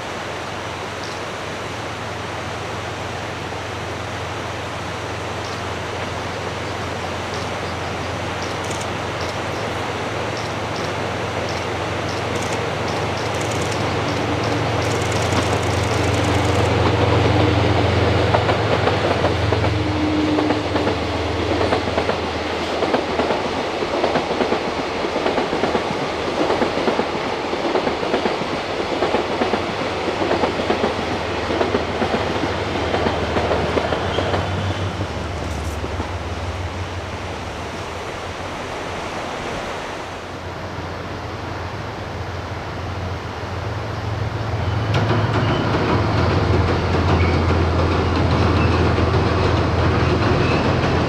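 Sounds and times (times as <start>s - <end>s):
river rushing: 0.0s - 51.0s
locomotive engine humming: 2.0s - 27.0s
train wheels clattering over rails: 5.4s - 36.2s, 44.8s - 51.0s.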